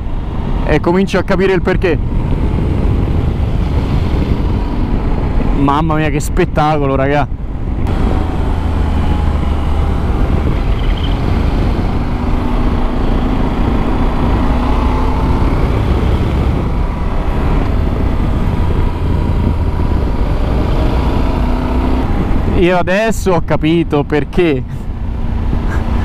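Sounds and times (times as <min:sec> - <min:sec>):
heavy wind rumble: 0:00.0 - 0:26.0
motorcycle engine running: 0:07.4 - 0:22.5.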